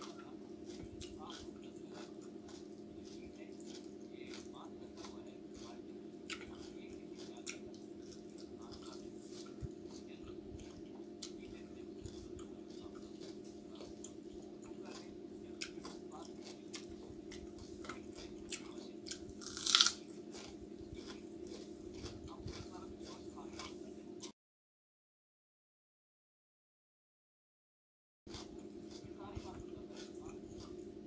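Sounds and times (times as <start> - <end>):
wet chewing: 0.0 - 24.3, 28.3 - 31.0
sharp crunch of biting onion: 14.9 - 23.8.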